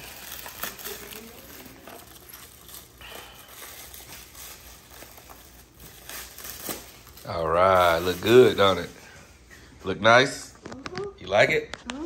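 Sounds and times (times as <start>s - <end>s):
plastic wrapping crinkling: 0.0s - 9.3s.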